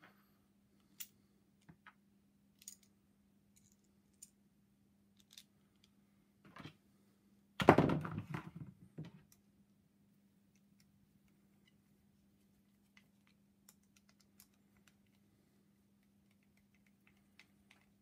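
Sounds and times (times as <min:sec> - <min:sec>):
small plastic clicks: 0:13.0 - 0:15.2.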